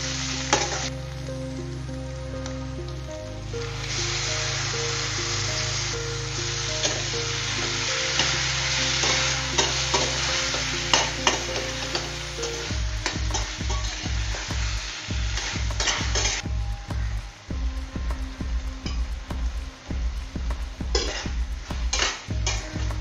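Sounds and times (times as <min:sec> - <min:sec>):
meat sizzling in oil: 0:00.0 - 0:02.8, 0:03.4 - 0:17.1, 0:20.9 - 0:23.0
background music: 0:00.0 - 0:23.0.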